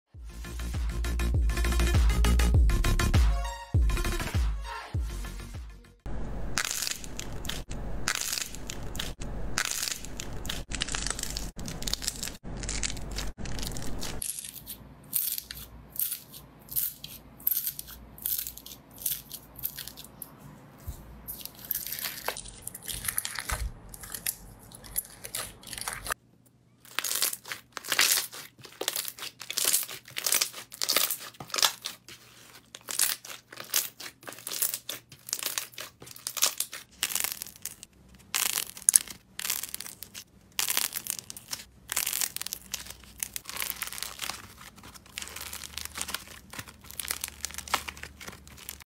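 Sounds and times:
foam-bead slime crunching: 6.6s - 20.2s, 21.3s - 26.2s, 26.8s - 48.9s
hands squeezing slime: 26.9s - 48.8s.

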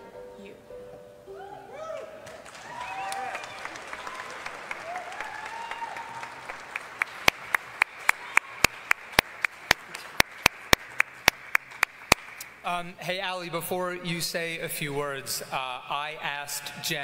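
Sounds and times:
audience applause: 2.2s - 12.5s
close hand claps: 2.2s - 12.6s.

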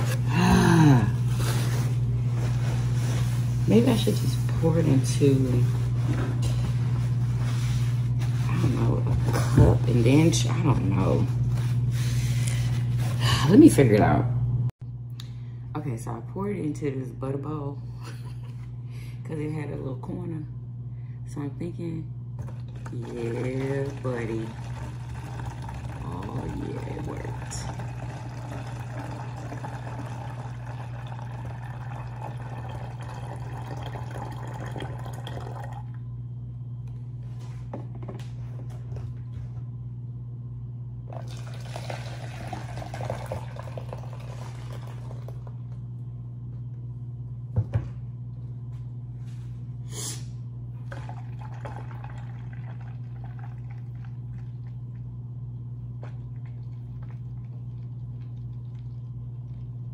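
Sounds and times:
steady low hum: 0.0s - 59.9s
juice pouring into bottle: 22.4s - 36.0s, 41.1s - 45.6s, 50.8s - 55.0s, 56.0s - 59.8s.

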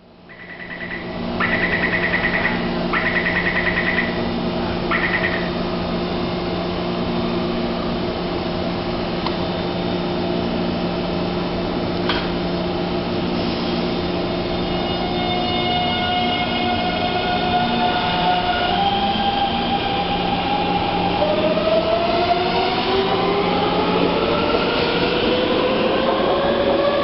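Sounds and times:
train equipment humming: 0.1s - 27.0s.

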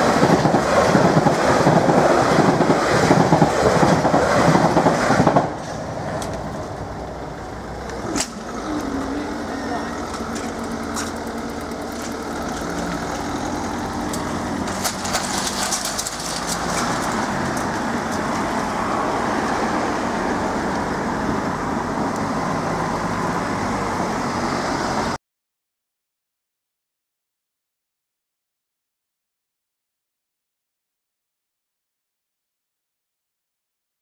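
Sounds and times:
vehicles driving past: 0.0s - 25.2s.

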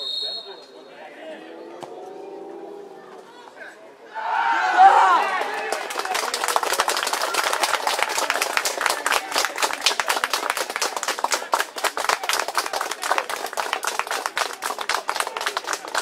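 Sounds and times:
people shouting: 4.1s - 5.8s
people clapping: 5.0s - 16.0s.

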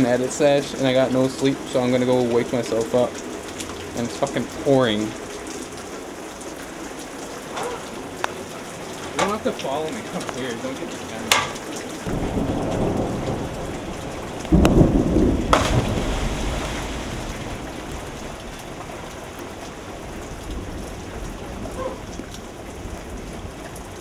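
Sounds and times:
rain falling on pool: 0.0s - 24.0s
water churning: 0.0s - 24.0s
deep splash into pool: 14.5s - 18.2s.

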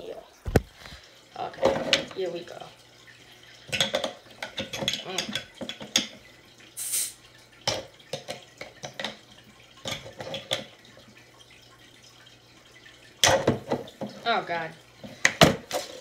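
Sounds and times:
soda bottle hiss: 6.8s - 7.2s.

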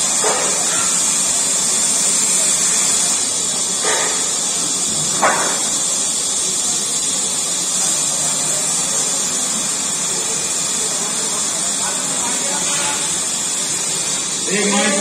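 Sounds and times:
steady high hiss: 0.0s - 15.0s
low background murmur: 5.6s - 15.0s.

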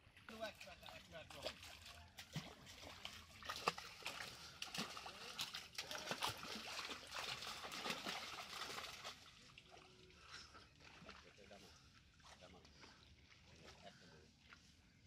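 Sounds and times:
water sloshing from wading: 0.0s - 14.1s
fish thrashing and splashing: 1.3s - 9.7s.

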